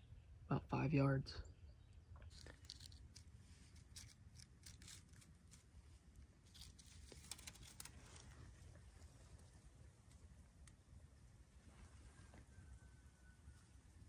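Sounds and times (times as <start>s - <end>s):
hands handling bow and arrow: 2.2s - 10.7s.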